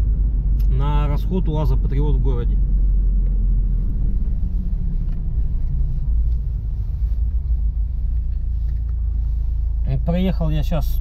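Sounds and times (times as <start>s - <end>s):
engine and road rumble in cabin: 0.0s - 11.0s.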